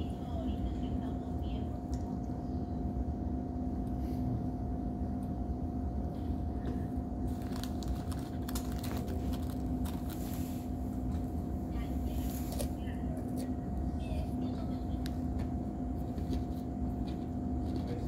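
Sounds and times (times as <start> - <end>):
low mechanical rumble and hum: 0.0 - 18.0.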